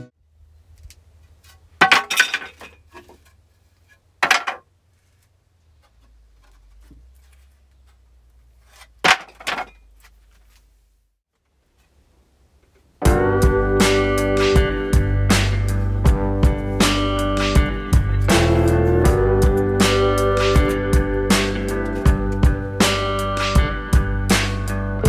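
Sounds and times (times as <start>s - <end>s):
wooden boards knocking: 4.2s - 4.7s, 9.0s - 9.8s.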